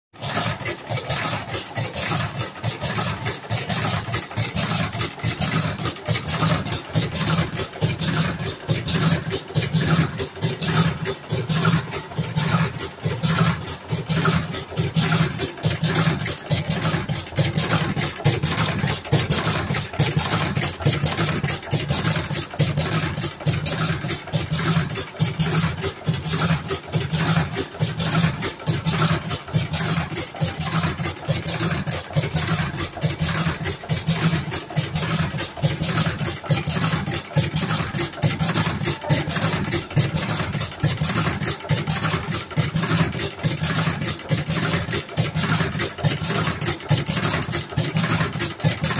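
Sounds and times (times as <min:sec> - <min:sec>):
fast machine clatter: 0:00.2 - 0:48.9
machine motor hum: 0:25.6 - 0:44.0.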